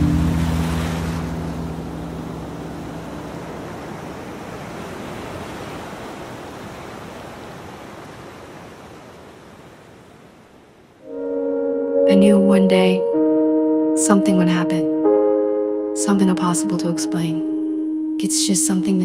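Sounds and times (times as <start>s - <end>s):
waves washing: 0.0s - 13.4s.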